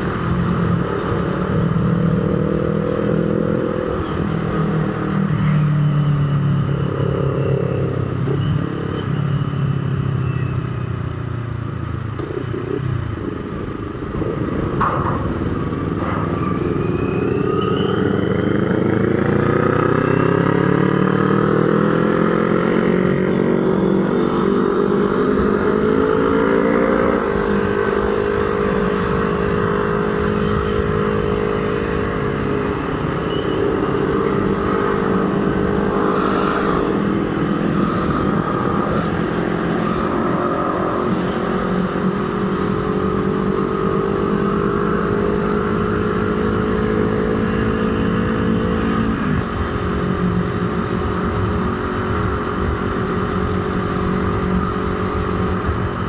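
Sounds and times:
road and wind noise: 0.0s - 56.0s
motorcycle engine revving: 12.1s - 56.0s.

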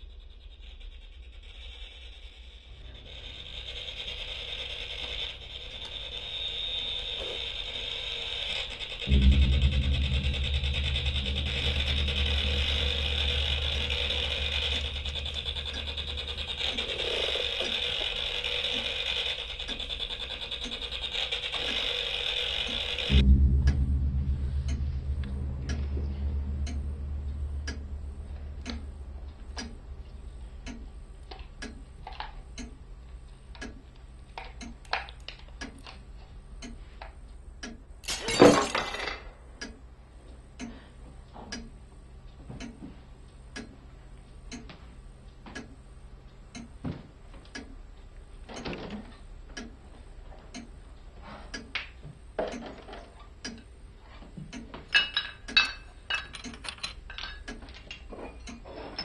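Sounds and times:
clock ticking: 4.2s - 38.0s, 39.6s - 49.8s, 50.5s - 52.7s, 53.4s - 53.8s, 54.4s - 58.7s
low rumble: 7.6s - 20.7s, 22.8s - 34.3s
broken pieces clinking: 38.0s - 39.2s.

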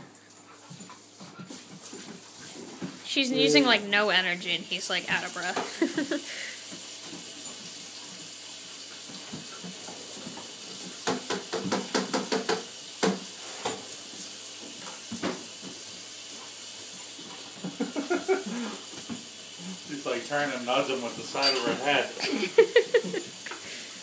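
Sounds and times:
steady hiss: 17.7s - 24.0s.

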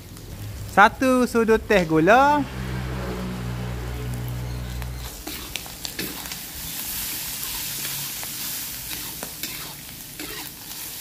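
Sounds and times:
meat sizzling in a wok: 4.1s - 11.0s
metal spatula scraping: 4.5s - 10.8s.

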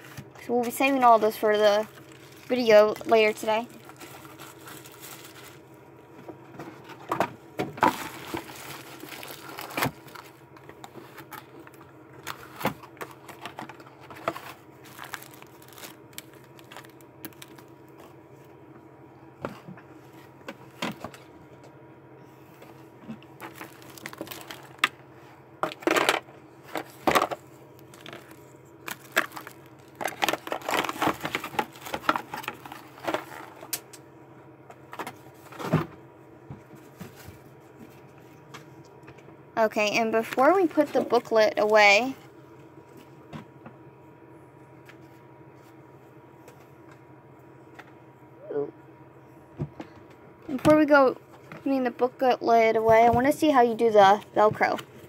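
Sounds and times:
faint steady hum: 0.0s - 55.0s
rustling and scraping: 6.3s - 18.6s, 25.7s - 33.7s, 36.6s - 38.7s.

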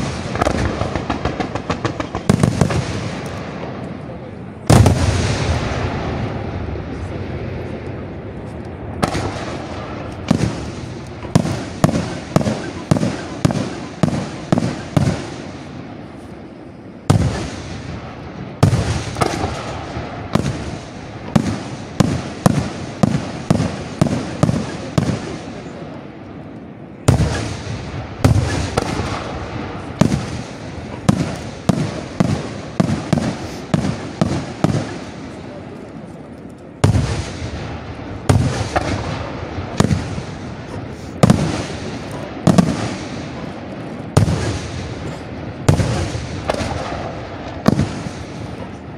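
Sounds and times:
firework shells bursting: 8.6s - 16.4s, 26.5s - 48.9s.

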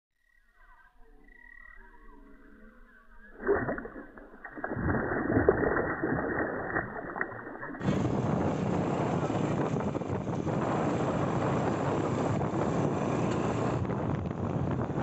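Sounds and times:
fish splashing in water: 3.2s - 8.0s.

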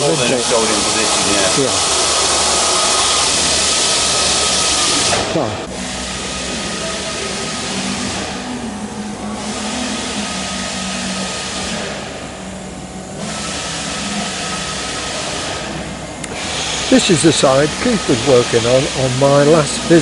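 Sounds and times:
machine humming: 0.0s - 20.0s.

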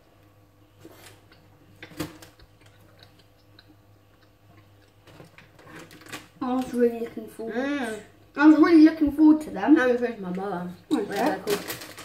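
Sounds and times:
snack packet crinkling: 5.1s - 6.7s, 10.9s - 12.0s.

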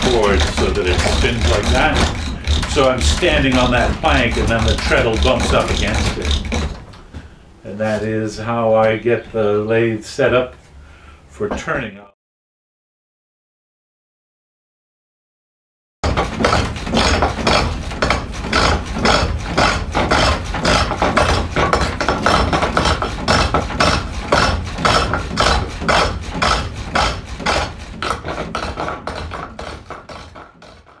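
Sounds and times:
gouge cutting spinning wood: 0.0s - 6.9s, 16.0s - 31.0s
low thudding of treadle: 0.0s - 6.9s.

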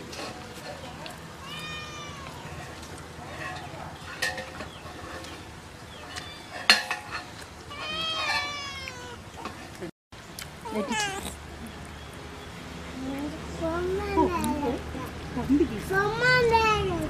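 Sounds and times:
cat meowing: 1.4s - 2.6s, 7.7s - 9.3s, 10.6s - 11.4s.

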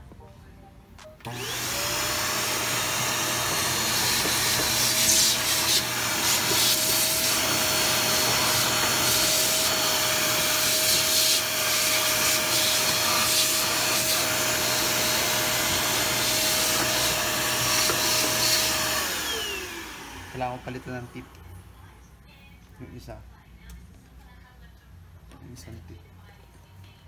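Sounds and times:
vacuum cleaner whine: 1.2s - 21.5s.

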